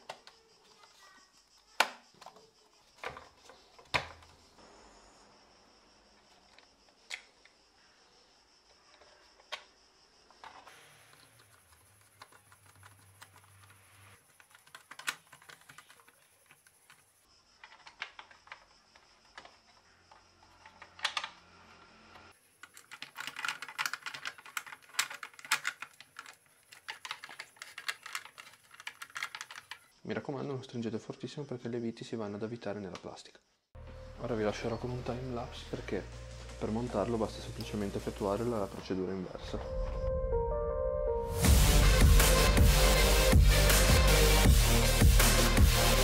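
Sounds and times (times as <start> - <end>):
plastic parts clicking and tapping: 0.0 - 1.0, 1.8 - 4.4, 8.9 - 21.6, 22.2 - 29.9.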